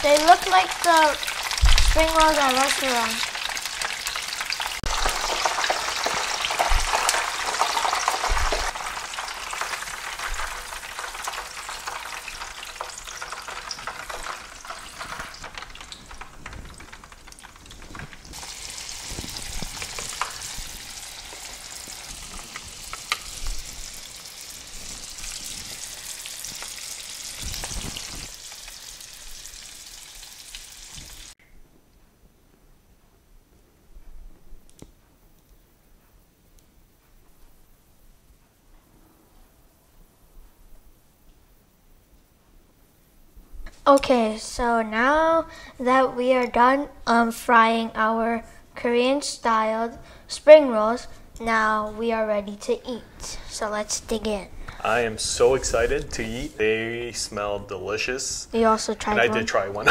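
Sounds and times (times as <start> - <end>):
oil sizzling while deep-frying: 0.0 - 31.4, 49.4 - 59.9.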